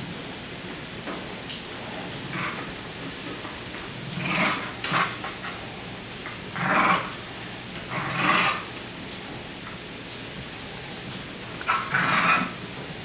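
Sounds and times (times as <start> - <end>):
dogs play-growling: 1.8 - 8.9, 10.9 - 13.0.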